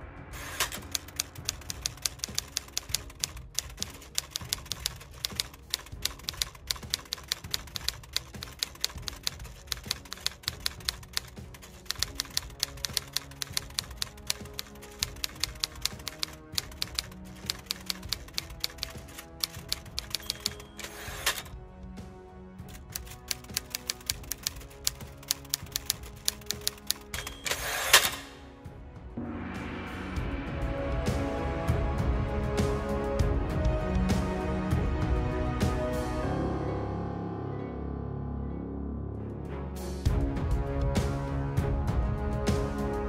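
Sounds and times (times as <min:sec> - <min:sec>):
soft background music: 0:00.0 - 0:43.0
typewriter keys clacking: 0:00.4 - 0:21.5, 0:22.7 - 0:28.2.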